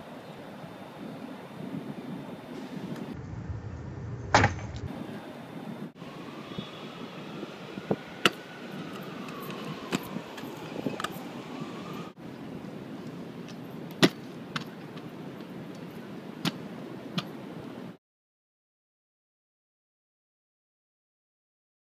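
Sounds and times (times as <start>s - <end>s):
city background hum: 0.0s - 18.0s
faint whine: 2.5s - 6.8s
scooter landing on concrete: 4.1s - 5.0s.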